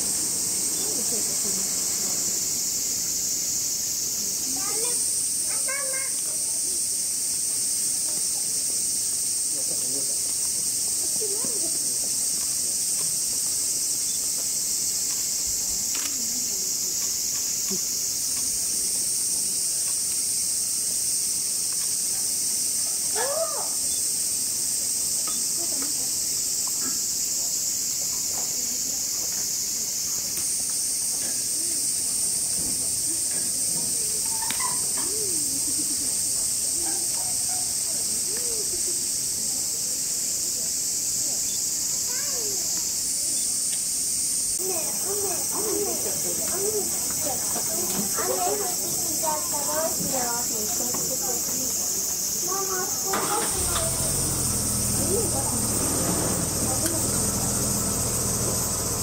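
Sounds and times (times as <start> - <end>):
cicadas droning: 0.0 - 59.0.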